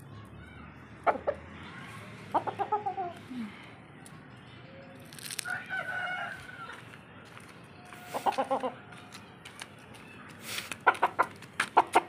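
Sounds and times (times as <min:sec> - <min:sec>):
chicken clucking: 0:02.3 - 0:03.2, 0:07.8 - 0:09.2, 0:10.6 - 0:12.0.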